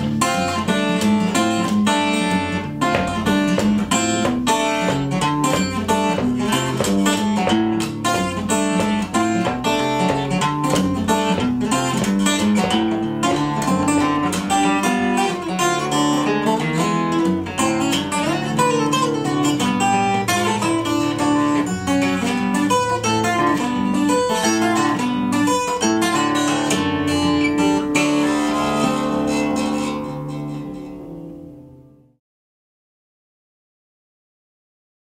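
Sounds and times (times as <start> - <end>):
fingerstyle acoustic guitar: 0.0 - 32.2.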